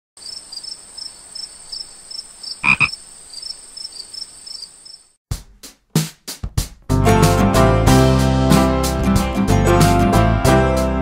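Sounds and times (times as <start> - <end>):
frog croaking: 0.2 - 5.1
insect trill: 0.2 - 5.2.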